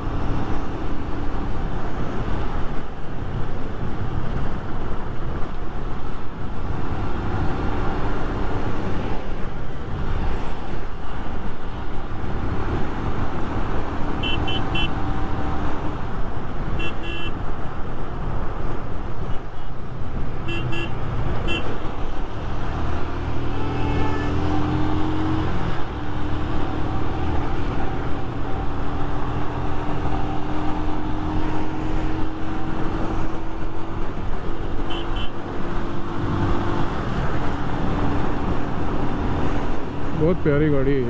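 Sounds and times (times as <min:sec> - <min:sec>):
horn toots: 0:14.2 - 0:15.0, 0:20.5 - 0:21.7, 0:23.5 - 0:24.5, 0:34.9 - 0:35.3.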